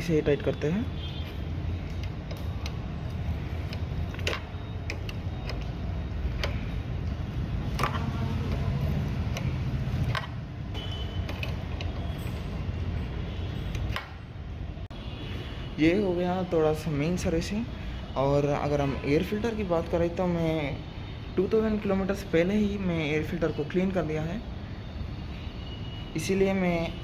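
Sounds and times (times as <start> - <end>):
sharp metal clicks and creaks: 1.7 - 12.7.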